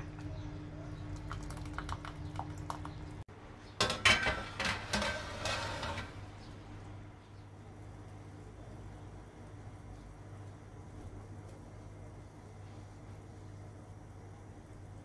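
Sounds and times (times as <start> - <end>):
baking tray and oven rack clattering: 3.8 - 6.2.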